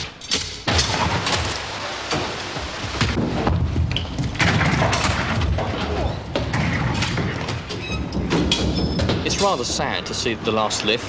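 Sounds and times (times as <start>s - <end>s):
heavy metal knocks and thuds: 2.2s - 9.6s.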